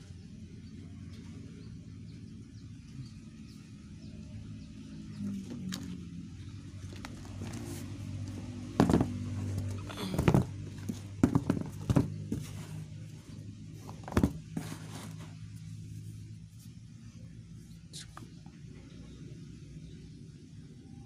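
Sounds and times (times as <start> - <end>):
shoes knocking on cardboard: 8.7 - 12.8, 13.9 - 15.2.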